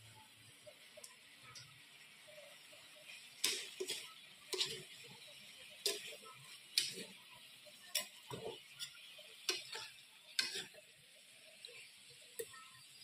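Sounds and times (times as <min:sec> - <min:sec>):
faint sizzle: 0:00.0 - 0:13.0
metal spatula scraping a wok: 0:02.9 - 0:11.0.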